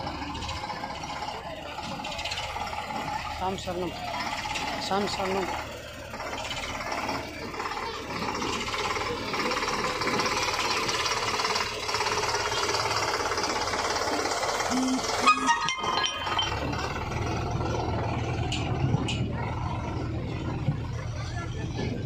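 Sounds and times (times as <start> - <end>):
tractor diesel engine running: 0.0 - 22.0
sharp metallic clanks: 14.8 - 17.8.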